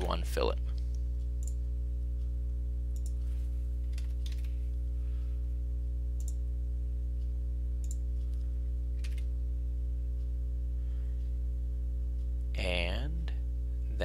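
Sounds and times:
low electrical hum: 0.0s - 14.0s
computer mouse clicks: 0.8s - 1.6s, 2.9s - 4.6s, 7.8s - 8.4s, 9.0s - 9.3s.

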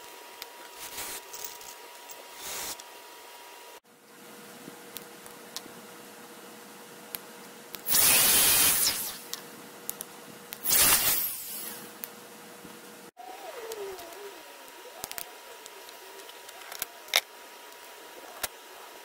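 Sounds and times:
shop vacuum motor whooshing on: 7.9s - 9.4s, 10.6s - 12.0s.

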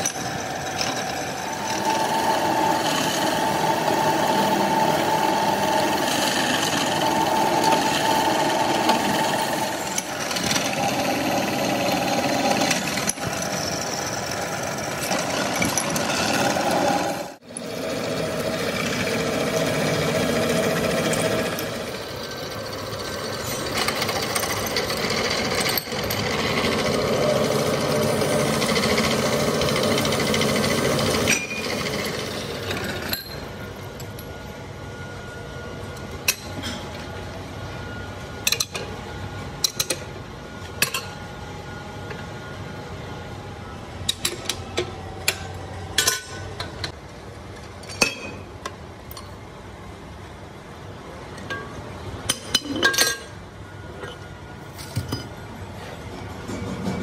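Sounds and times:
pillar drill cutting metal: 0.0s - 33.4s.

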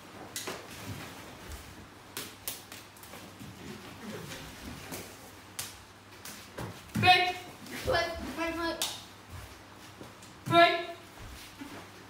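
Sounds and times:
uniform snapping on strikes: 2.1s - 3.1s, 5.5s - 6.4s.

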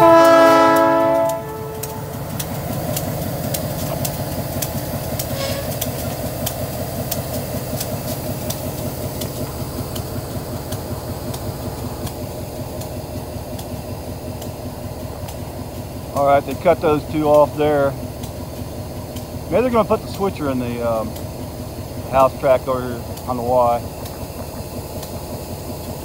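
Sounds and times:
diesel locomotives rumbling past: 0.0s - 26.0s
sharp clicks: 0.7s - 10.1s.

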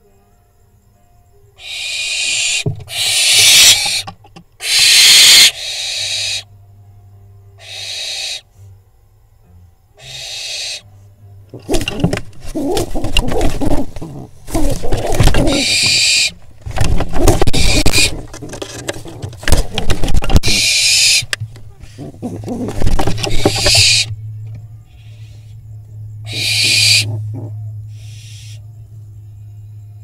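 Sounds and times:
owl fledgling screeching: 1.6s - 6.5s, 7.6s - 8.5s, 10.0s - 10.9s, 14.6s - 16.4s, 17.2s - 18.2s, 20.4s - 21.3s, 23.2s - 24.1s, 26.2s - 27.2s, 27.9s - 28.6s
scuffling and wing flapping: 11.6s - 20.6s, 21.2s - 24.1s.

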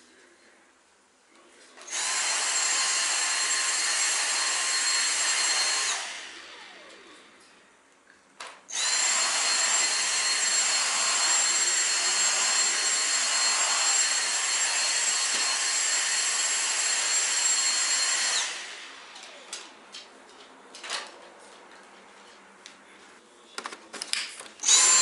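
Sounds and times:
handheld vacuum cleaner whining: 1.8s - 7.6s, 8.7s - 20.1s, 24.6s - 25.0s.

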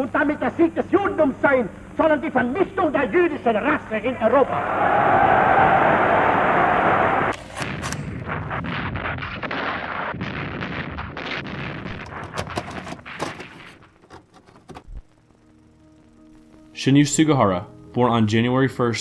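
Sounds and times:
loud crowd noise: 4.4s - 7.3s
gunshots and artillery fire: 7.3s - 14.0s.

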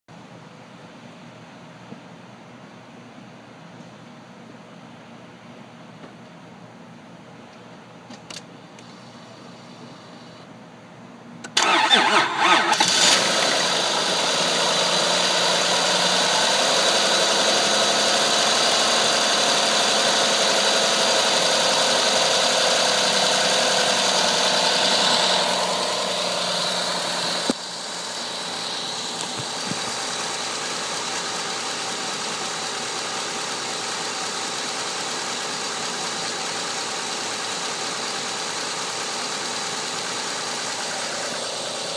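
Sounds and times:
car engine cranking: 11.5s - 20.9s, 22.4s - 31.8s
car engine idling: 11.6s - 41.9s.

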